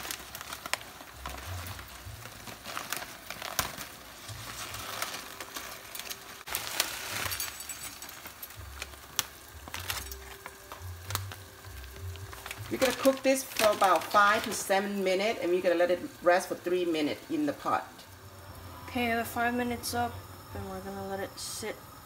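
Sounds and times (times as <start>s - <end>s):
plastic packet crinkling: 0.0s - 16.4s
brittle noodles crackling: 0.0s - 18.6s.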